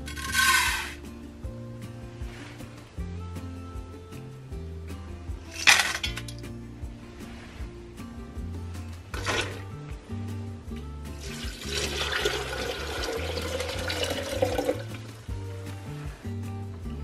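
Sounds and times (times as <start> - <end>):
background music: 0.0 - 17.0
thick drink pouring into glass: 9.2 - 9.6, 11.2 - 15.1.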